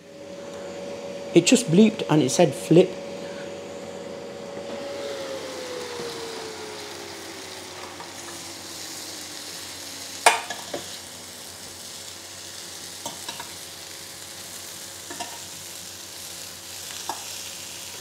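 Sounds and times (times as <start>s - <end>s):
grill fan hum: 0.0s - 18.0s
chicken sizzling on grill plate: 5.4s - 18.0s.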